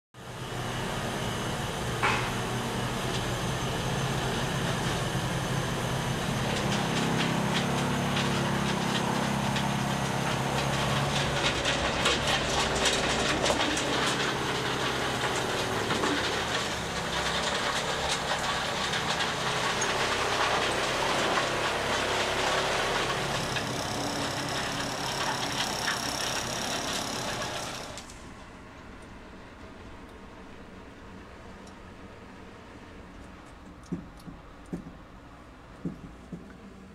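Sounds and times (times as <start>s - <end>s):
track machine running: 0.2s - 28.6s
ploughs scraping stones: 6.3s - 28.1s.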